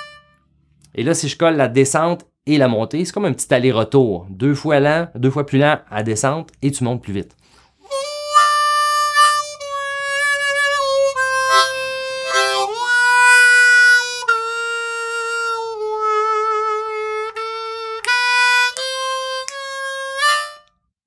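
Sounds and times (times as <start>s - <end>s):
harmonica bending long notes: 0.0s - 0.7s, 7.8s - 20.7s.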